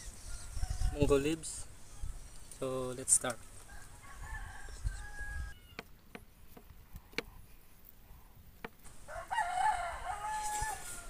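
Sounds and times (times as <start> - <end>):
rooster crowing: 3.6 - 5.9, 9.0 - 11.0.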